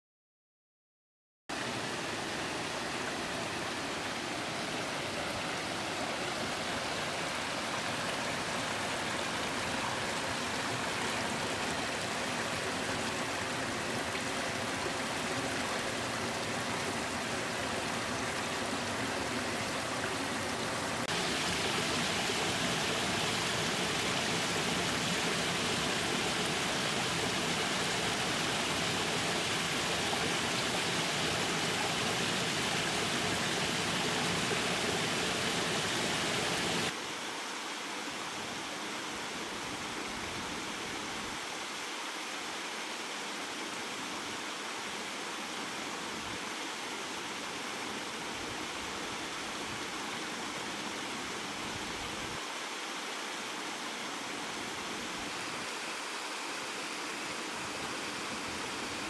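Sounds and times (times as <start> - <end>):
waterfall splashing over rocks: 1.5 - 38.0.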